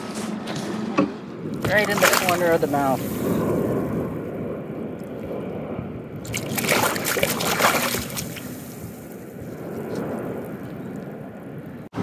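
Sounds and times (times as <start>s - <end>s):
water sloshing in landing net: 1.5s - 3.4s, 6.2s - 9.1s
fish splashing: 1.6s - 4.0s, 6.2s - 9.4s.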